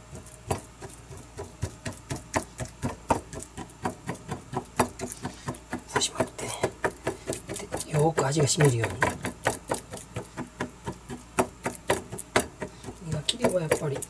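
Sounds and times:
fork tines clicking on cutting board: 0:00.2 - 0:14.0.

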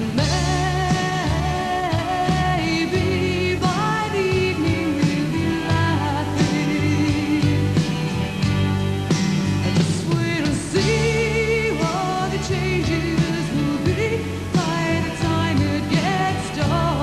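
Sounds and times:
woman singing: 0:00.0 - 0:08.4, 0:09.7 - 0:17.0
bass: 0:00.0 - 0:17.0
drums: 0:00.0 - 0:17.0
guitar: 0:00.0 - 0:17.0.

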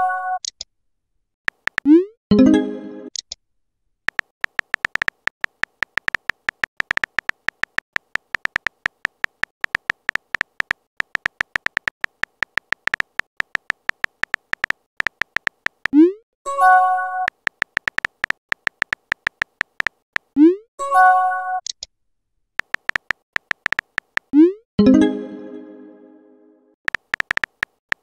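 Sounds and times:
short electronic typing ticks: 0:01.5 - 0:02.0, 0:04.1 - 0:16.0, 0:17.2 - 0:20.3, 0:22.6 - 0:24.5, 0:26.9 - 0:28.0.

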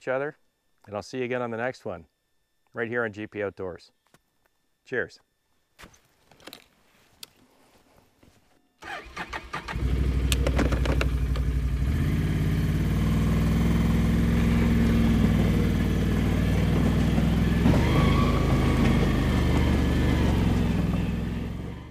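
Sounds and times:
atv engine sputtering and running: 0:09.7 - 0:21.9
clicks and rattles: 0:10.3 - 0:11.5.

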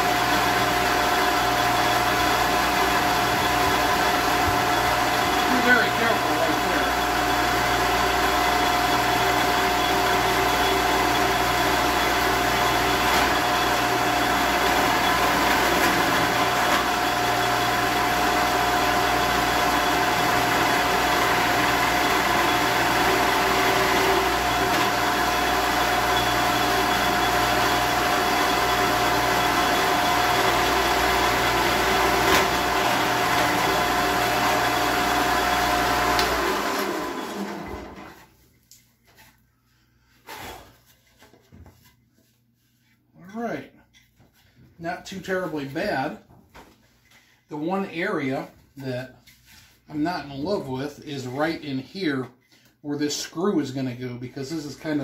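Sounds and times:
drill bit whining into wood: 0:00.0 - 0:38.0
drill press motor hum: 0:00.0 - 0:38.1.

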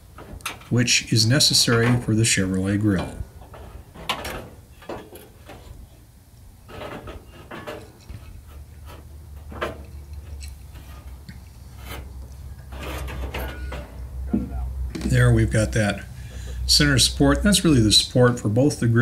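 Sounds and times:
low steady hum: 0:00.0 - 0:19.0
sheet metal scraping and clicking: 0:00.1 - 0:06.0, 0:06.6 - 0:14.1.

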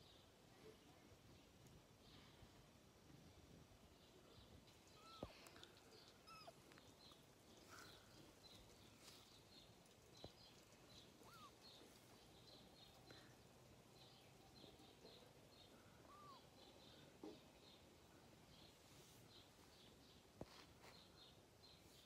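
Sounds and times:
small birds chirping: 0:00.0 - 0:22.0
short high bird calls: 0:11.2 - 0:11.7, 0:16.0 - 0:16.5.

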